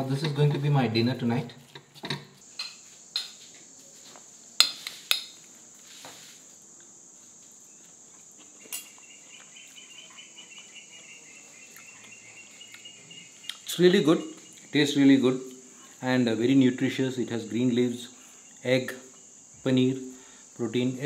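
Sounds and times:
crickets chirping: 0:00.0 - 0:21.0
low pulsing cricket trill: 0:00.0 - 0:21.0
spoon clinking against bowl: 0:08.6 - 0:09.0.

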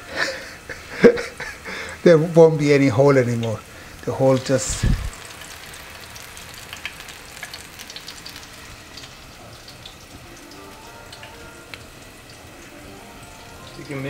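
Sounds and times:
hot oil sizzling in a frying pan: 0:00.0 - 0:14.0.

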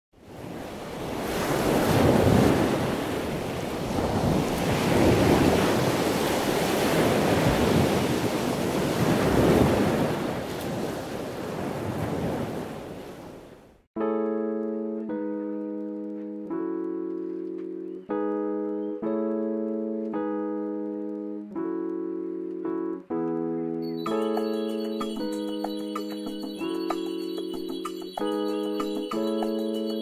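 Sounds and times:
ocean waves washing in: 0:00.2 - 0:13.7.

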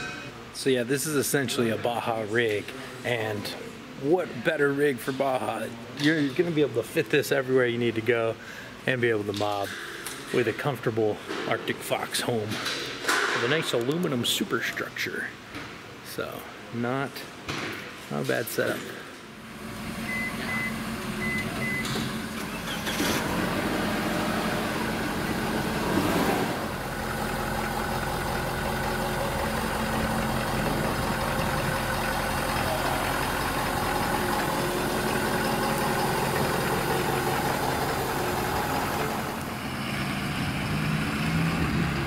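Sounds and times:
diesel engine running: 0:19.4 - 0:42.0.

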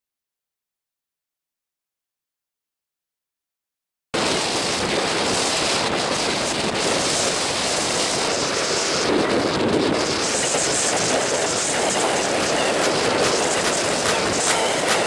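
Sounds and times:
strong gusty wind on microphone: 0:04.2 - 0:15.0.

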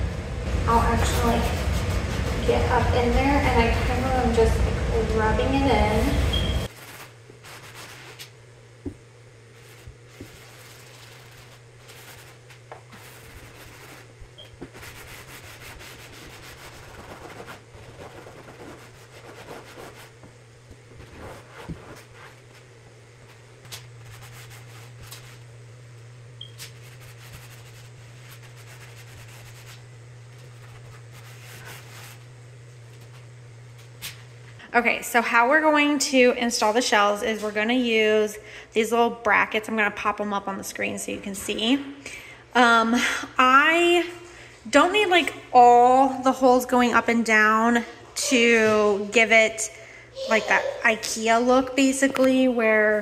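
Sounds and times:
steady low hum: 0:00.0 - 0:53.0
cloth rag scrubbing wood: 0:00.8 - 0:03.6, 0:06.7 - 0:08.3, 0:09.5 - 0:20.2, 0:20.9 - 0:22.7, 0:23.3 - 0:25.5, 0:26.6 - 0:32.3.

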